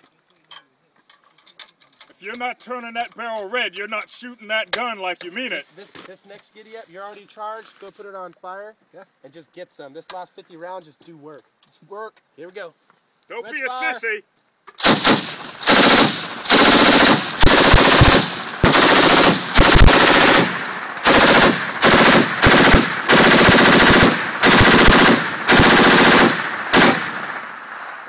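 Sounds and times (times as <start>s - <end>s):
machine gun bursts: 14.8s - 27.5s.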